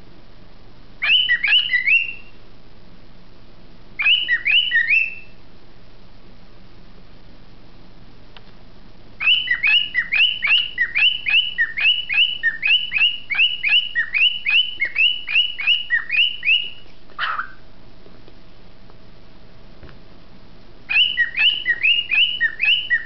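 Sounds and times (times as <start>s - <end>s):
cockatiel chirping: 1.0s - 2.4s, 4.0s - 5.4s, 9.2s - 17.6s, 20.9s - 23.0s
rough low bird call: 9.2s - 17.7s.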